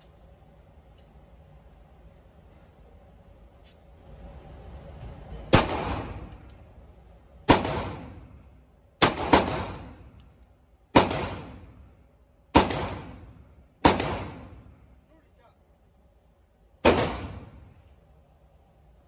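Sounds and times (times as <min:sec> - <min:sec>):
handgun shots indoors: 0:05.6 - 0:06.6, 0:07.5 - 0:08.3, 0:09.0 - 0:10.3, 0:10.9 - 0:14.8, 0:16.8 - 0:17.8.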